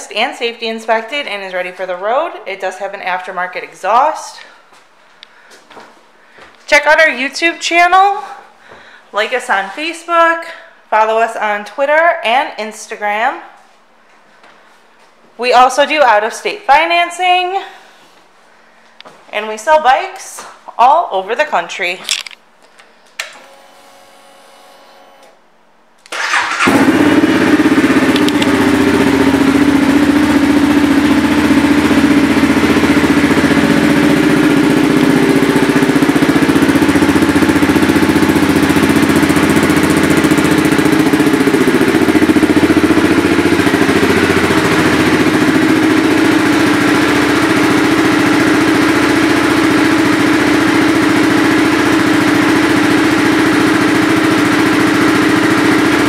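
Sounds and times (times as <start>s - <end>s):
motorcycle engine starting and idling: 26.1s - 56.0s.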